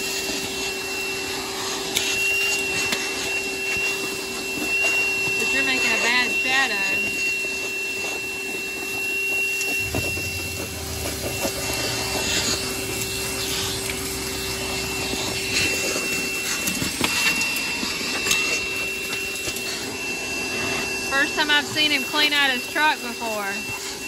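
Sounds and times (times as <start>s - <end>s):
wet dry vacuum whining: 0.0s - 24.0s
debris crackling up a hose: 1.8s - 19.9s
lower hum: 2.4s - 24.0s.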